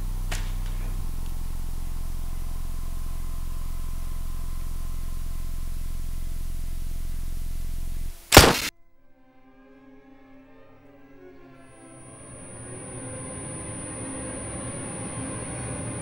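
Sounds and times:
steady low hum: 0.0s - 8.7s, 11.6s - 16.0s
loud gunshot: 8.3s - 8.7s.

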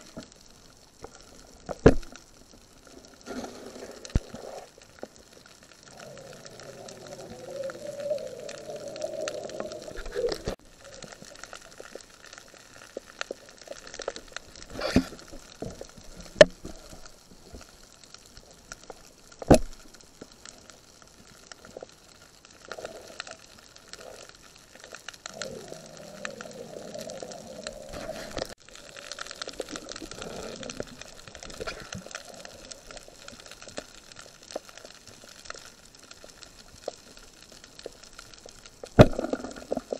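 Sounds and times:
underwater crackle of fine clicks: 0.0s - 39.9s
sharp knocks underwater: 1.8s - 2.1s, 19.4s - 19.8s, 38.9s - 39.8s
bubbly gurgling: 3.0s - 12.6s, 25.2s - 33.7s, 38.8s - 39.9s.

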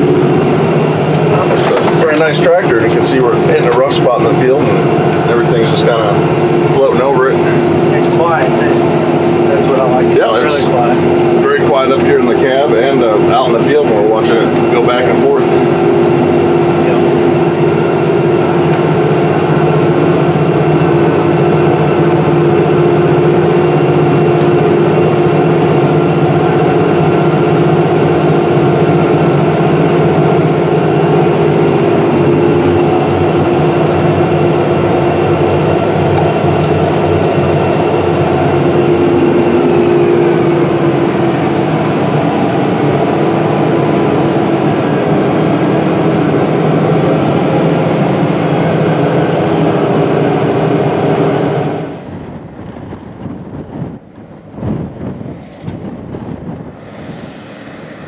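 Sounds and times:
high whine: 0.0s - 58.0s
tractor engine drone: 0.0s - 58.0s.

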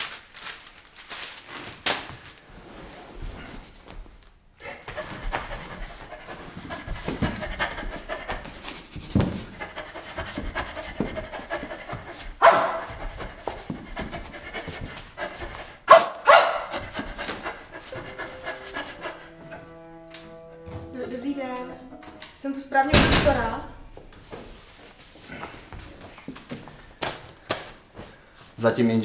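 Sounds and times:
man panting like a dog: 4.6s - 20.0s
music with held notes: 17.8s - 22.9s.

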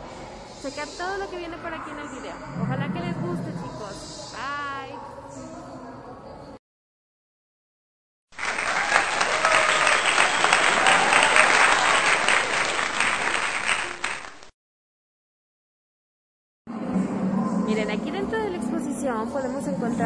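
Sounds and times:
crowd applause: 8.3s - 14.5s.

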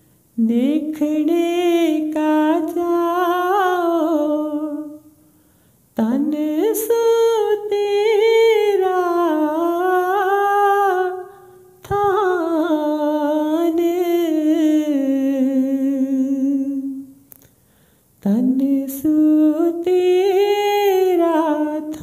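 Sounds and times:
person singing unaccompanied: 0.4s - 5.2s, 6.0s - 17.2s, 18.2s - 22.0s.

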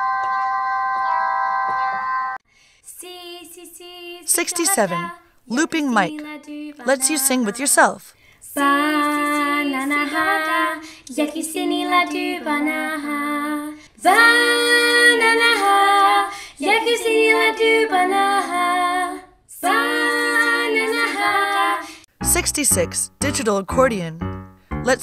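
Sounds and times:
girl singing a cappella: 2.9s - 22.6s.

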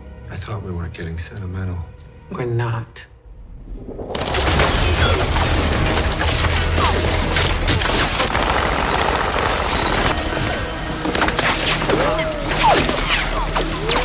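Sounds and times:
deep rumble: 3.1s - 6.2s
rapid gunfire: 4.2s - 10.2s.

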